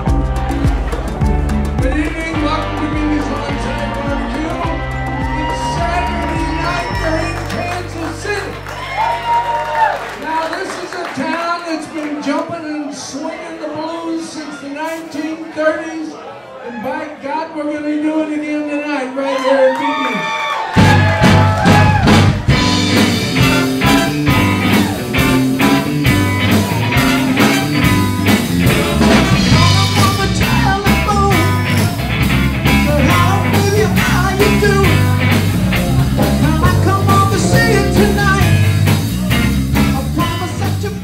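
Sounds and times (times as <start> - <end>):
person singing: 0.0 - 7.9, 22.8 - 25.0, 29.5 - 32.0, 32.7 - 35.3, 36.2 - 41.0
blues band playing: 0.0 - 10.8, 20.8 - 41.0.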